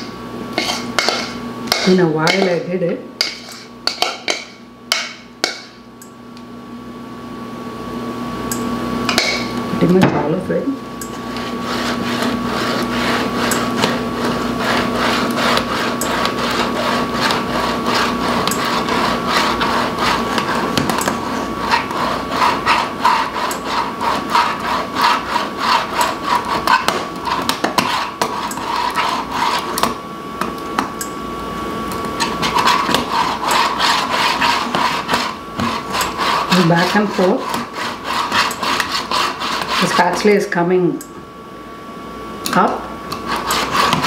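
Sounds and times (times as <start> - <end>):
metal hopper scraping on plate: 0.0 - 4.5, 11.3 - 30.0, 32.2 - 40.4, 43.2 - 44.0.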